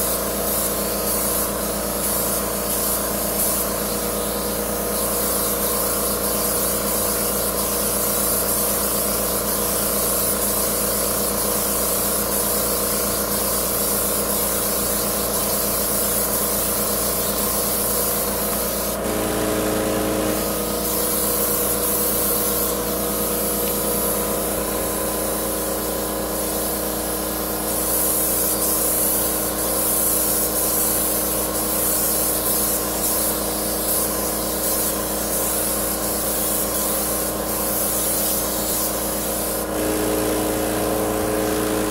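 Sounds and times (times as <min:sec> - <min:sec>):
paint spray gun hissing: 0:00.0 - 0:41.9
sprayer machinery humming: 0:18.2 - 0:25.5, 0:39.5 - 0:41.9.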